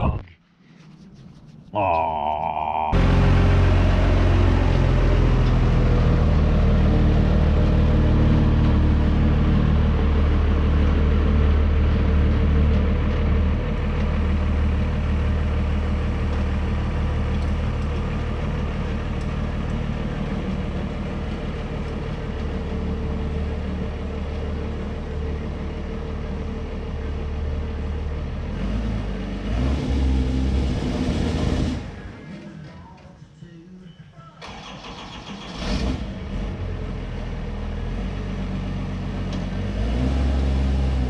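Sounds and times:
monster truck engine revving: 1.8s - 15.4s, 28.4s - 32.5s, 34.4s - 41.0s.

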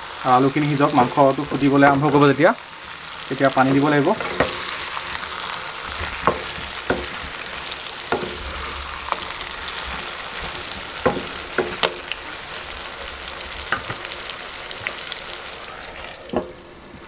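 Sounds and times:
food sizzling in oil: 0.0s - 17.0s
spatula knocking against pan: 6.2s - 7.3s, 8.1s - 8.4s, 11.0s - 12.0s.

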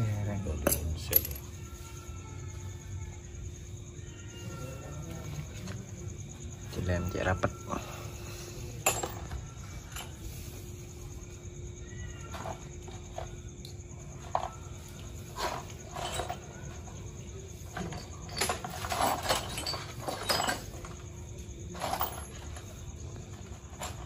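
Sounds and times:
metal parts clinking: 0.6s - 1.7s, 8.8s - 10.3s, 14.3s - 24.0s.

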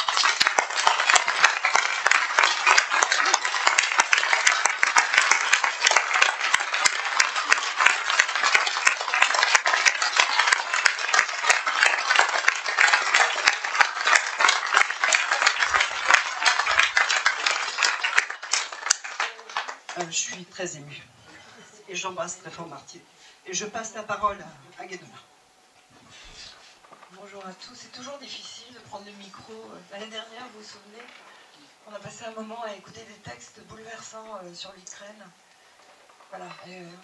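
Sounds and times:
audience applauding: 0.0s - 20.4s.

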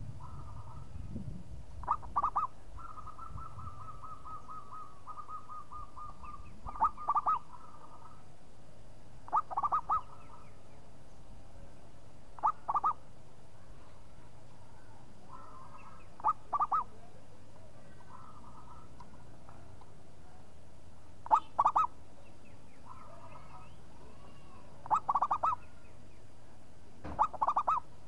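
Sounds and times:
dove cooing: 1.8s - 8.2s, 9.3s - 10.2s, 12.4s - 13.0s, 15.3s - 17.0s, 21.2s - 22.0s, 24.8s - 25.7s, 27.1s - 27.9s
soft rapid repeated bird notes: 1.8s - 8.2s, 9.2s - 11.0s, 12.3s - 13.1s, 15.4s - 16.9s, 21.2s - 23.9s, 24.8s - 26.4s, 27.2s - 28.0s.

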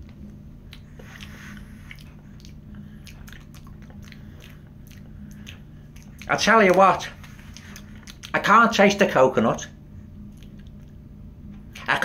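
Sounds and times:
faint steady hum: 0.0s - 12.0s
tongue clicks: 0.7s - 1.3s, 1.9s - 8.4s
wet lip smacks: 0.7s - 8.4s, 10.3s - 11.0s, 11.6s - 12.0s.

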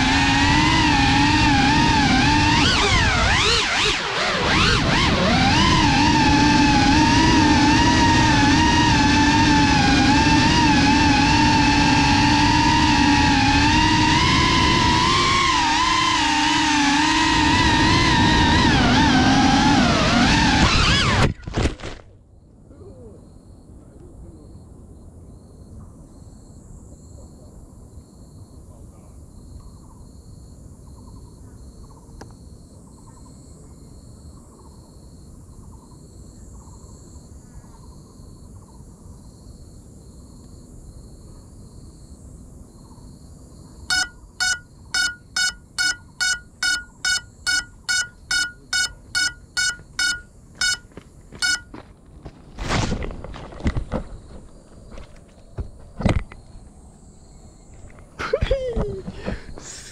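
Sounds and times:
faint chirping: 42.7s - 51.7s
drone buzzer beeping: 43.9s - 51.8s.

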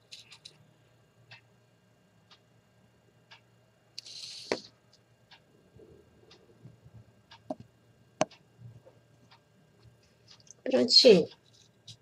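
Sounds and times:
faint clicks and taps: 0.0s - 0.6s, 6.3s - 10.7s, 11.3s - 12.0s.

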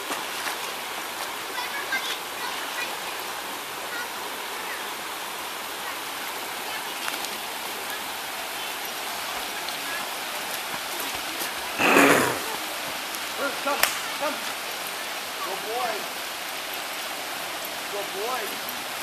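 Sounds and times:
creek water flowing: 0.0s - 19.0s.

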